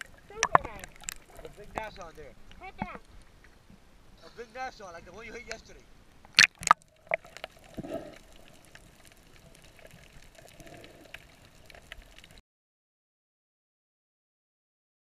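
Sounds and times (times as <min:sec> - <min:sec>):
muffled underwater sound: 0:00.0 - 0:03.0
water splashing: 0:00.0 - 0:03.2, 0:06.3 - 0:12.4
faint underwater clicks: 0:00.0 - 0:03.8, 0:05.4 - 0:12.4.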